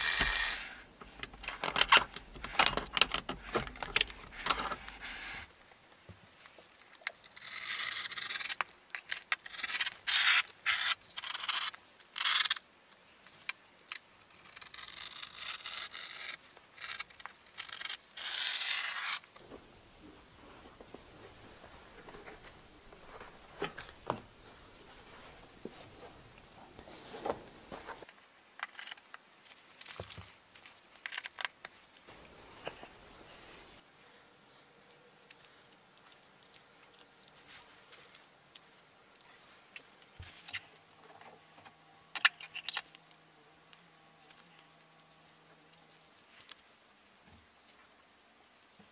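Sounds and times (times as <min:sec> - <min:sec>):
handling clicks and rustles: 0:00.0 - 0:05.5, 0:19.4 - 0:28.2, 0:29.1 - 0:33.8.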